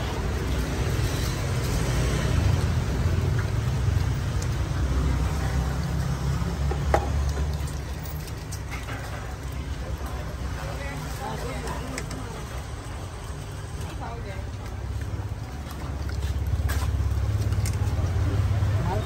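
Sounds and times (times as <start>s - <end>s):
traffic rumble: 0.0s - 19.0s.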